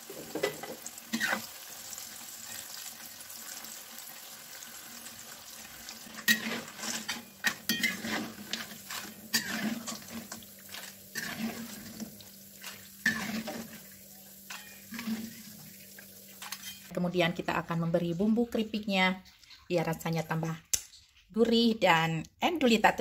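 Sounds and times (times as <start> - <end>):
skimmer scraping against wok: 0.0 - 1.5, 5.6 - 16.9
chips deep-frying in oil: 0.0 - 16.9.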